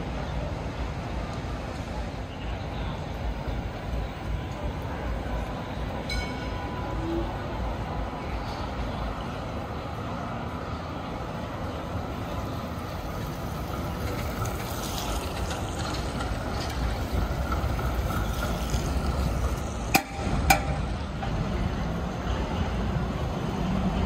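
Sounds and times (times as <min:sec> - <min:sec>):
trams running: 0:00.0 - 0:24.0
tyres hissing on wet road: 0:12.1 - 0:20.5.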